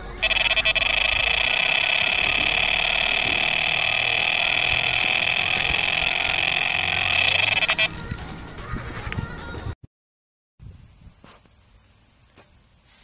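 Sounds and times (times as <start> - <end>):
electronic bite alarm pulsing tone: 0.0 - 8.2.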